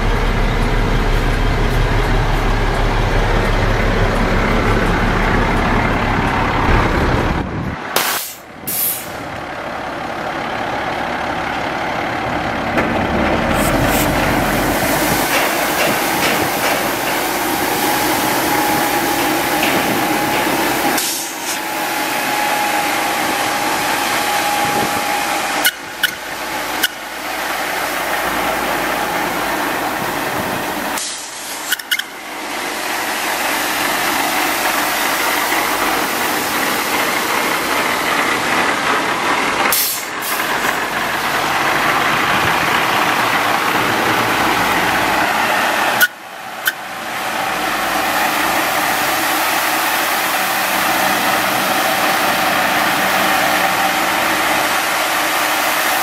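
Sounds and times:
truck engine running: 0.0s - 56.0s
water spray hissing on gravel: 13.5s - 22.2s.

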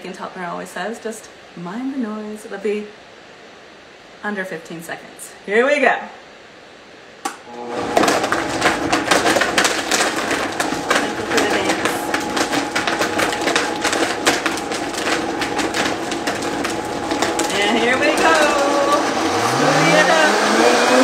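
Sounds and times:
blender motor hum: 7.5s - 21.0s
ice clattering in blender jar: 7.6s - 21.0s.

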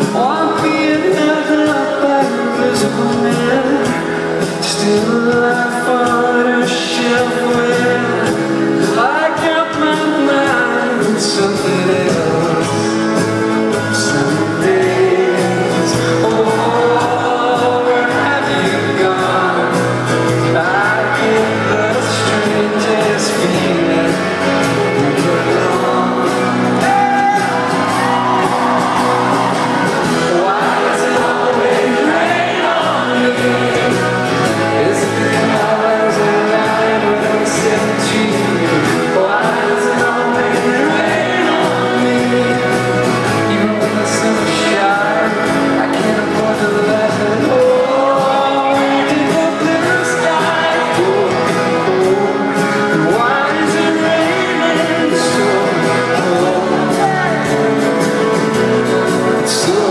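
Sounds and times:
live rock band with male singer: 0.0s - 59.9s
crowd shouting: 26.2s - 37.6s, 56.4s - 58.2s.

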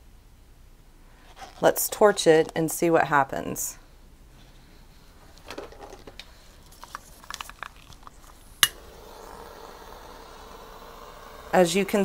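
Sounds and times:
lighter flame hissing: 8.4s - 12.0s.

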